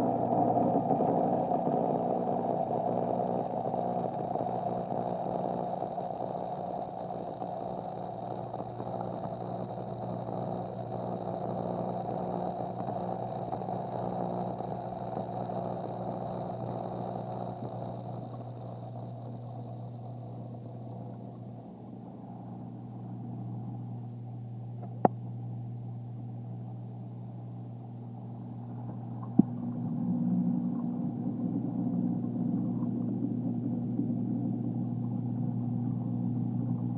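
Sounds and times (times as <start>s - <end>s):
electric pump hum: 0.0s - 36.9s
water flowing and splashing: 28.3s - 36.9s.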